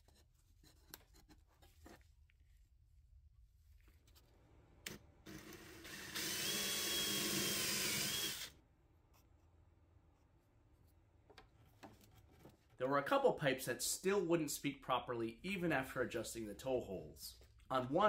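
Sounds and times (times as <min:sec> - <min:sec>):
electric drill running: 0:05.3 - 0:08.6.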